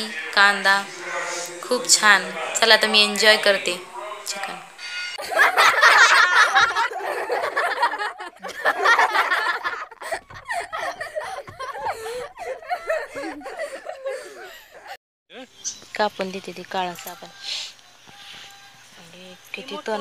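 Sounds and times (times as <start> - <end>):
people chattering: 0.0 - 20.0
people laughing: 5.2 - 15.0, 18.2 - 20.0.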